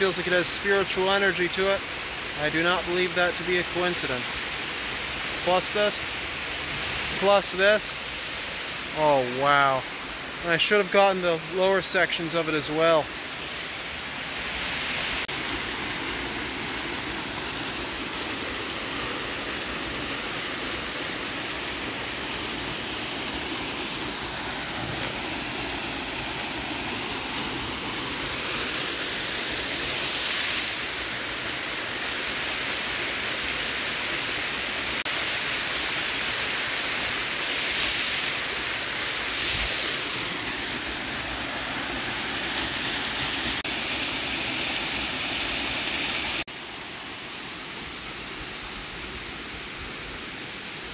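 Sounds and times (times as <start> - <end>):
waterfall rushing: 0.0 - 50.9.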